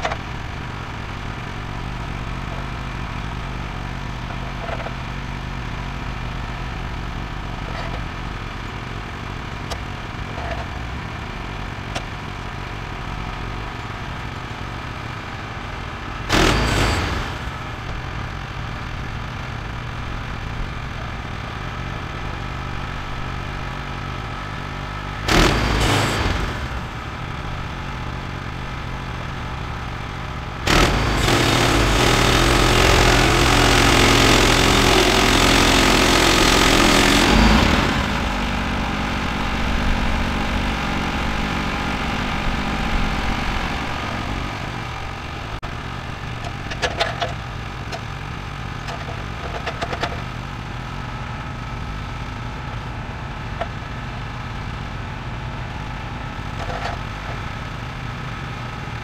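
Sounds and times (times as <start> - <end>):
sawmill engine running: 0.0 - 59.0
loud bursts of noise: 15.7 - 18.5, 25.0 - 46.8.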